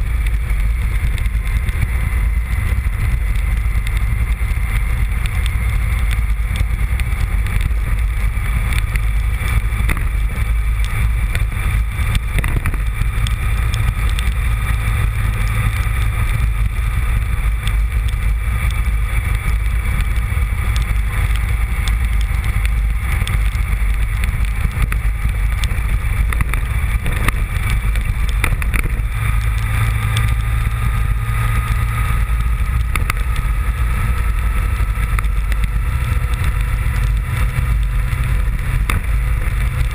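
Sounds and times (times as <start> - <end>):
motorcycle engine running: 0.0 - 39.9
wind buffeting microphone: 0.0 - 39.9.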